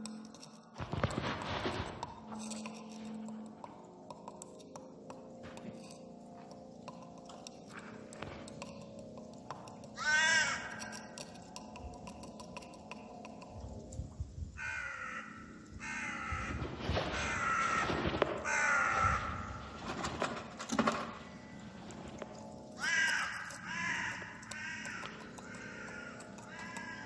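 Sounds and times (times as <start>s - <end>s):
crows cawing: 7.4s - 13.6s, 14.6s - 27.0s.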